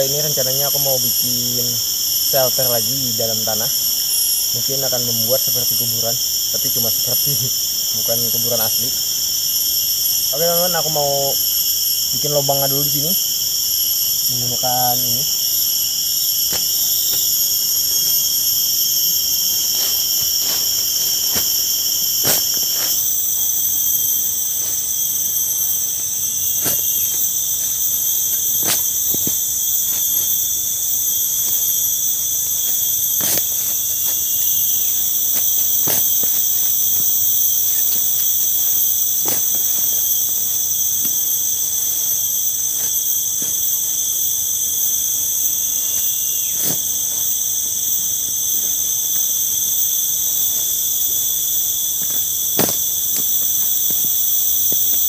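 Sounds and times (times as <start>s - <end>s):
insects chorus: 0.0s - 55.0s
hand tool striking ground: 16.4s - 17.4s, 19.6s - 30.5s, 32.6s - 40.4s, 46.6s - 47.0s, 52.0s - 55.0s.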